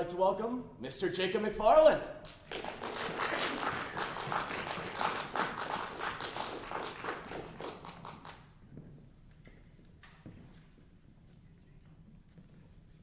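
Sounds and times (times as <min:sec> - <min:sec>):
audience applauding: 0:02.3 - 0:08.4.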